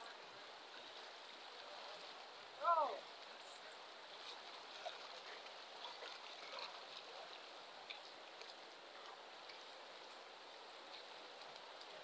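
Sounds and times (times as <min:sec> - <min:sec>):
small splashes: 0:04.0 - 0:12.0.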